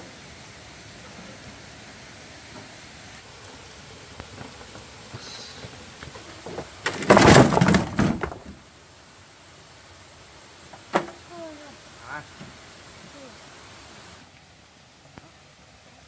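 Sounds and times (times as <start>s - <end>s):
faint steady background noise: 0.0s - 16.0s
loud clatter of knocks and rattling: 6.1s - 8.6s.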